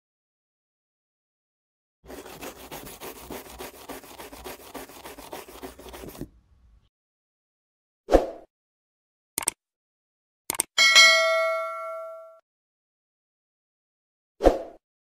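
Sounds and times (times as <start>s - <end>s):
scribbling strokes: 2.1s - 6.3s.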